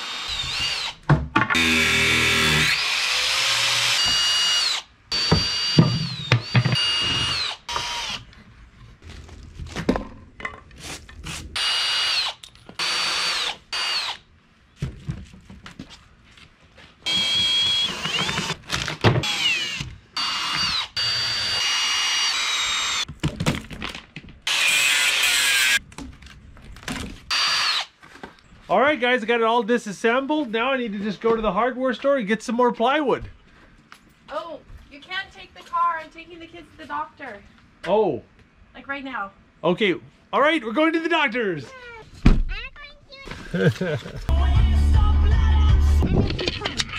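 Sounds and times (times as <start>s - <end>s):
cordless drill whirring: 0.0s - 1.0s, 1.6s - 8.3s, 11.6s - 14.2s, 17.0s - 23.1s, 27.3s - 27.9s.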